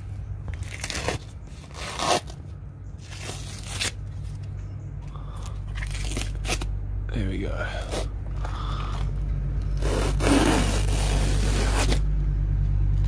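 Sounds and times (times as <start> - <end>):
plastic sheeting and tape peeling: 0.0 - 2.4, 3.0 - 4.2, 5.7 - 6.7, 9.7 - 12.0.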